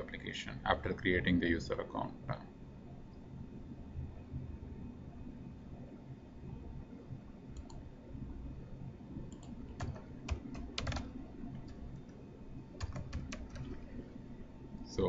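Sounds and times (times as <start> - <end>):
computer keyboard typing: 7.6 - 7.8, 9.3 - 12.2, 12.8 - 13.9.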